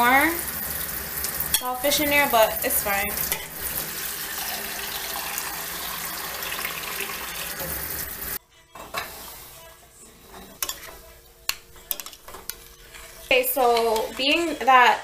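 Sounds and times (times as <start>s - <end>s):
tap water running into a pot: 0.0s - 8.4s.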